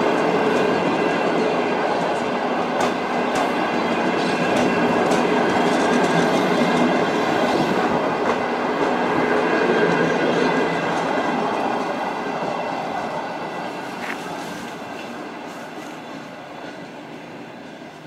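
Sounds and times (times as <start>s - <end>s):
steel wheels rolling on rail: 0.0s - 18.0s
wheels clicking over rail joints: 1.8s - 13.2s.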